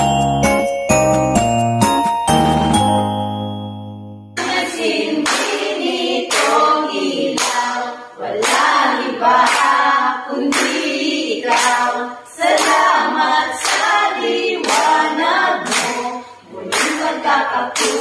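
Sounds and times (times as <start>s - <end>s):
group of voices singing: 4.4s - 18.0s
sharp hand claps: 5.2s - 6.7s, 7.3s - 7.7s, 8.4s - 8.8s, 9.4s - 9.8s, 10.4s - 11.9s, 12.5s - 12.9s, 13.6s - 15.0s, 15.6s - 16.1s, 16.7s - 17.2s, 17.8s - 18.0s.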